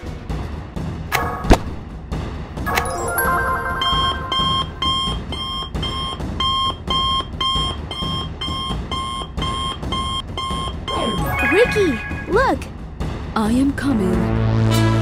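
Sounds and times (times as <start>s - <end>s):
stepped electronic chime: 2.7s - 5.4s
rapid electronic alarm beeping: 3.6s - 12.5s.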